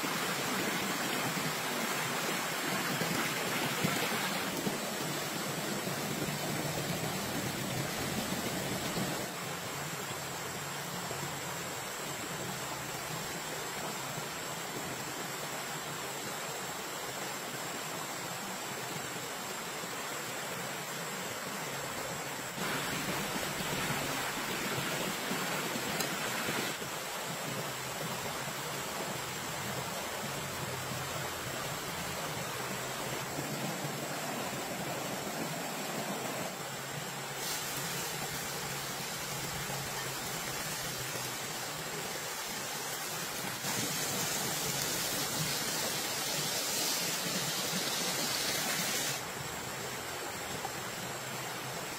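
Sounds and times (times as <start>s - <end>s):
creek running over rocks: 0.0s - 51.9s
pork sizzling in a hot wok: 37.4s - 38.1s.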